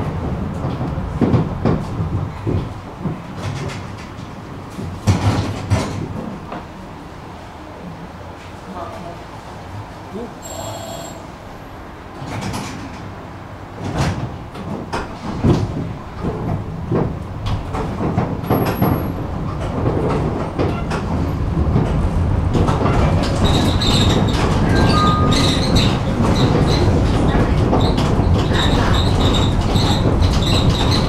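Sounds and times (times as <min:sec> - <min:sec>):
tram clunks over track: 0:00.0 - 0:31.0
tram running noise: 0:00.0 - 0:31.0
high tram squeals: 0:10.4 - 0:11.7, 0:23.4 - 0:31.0.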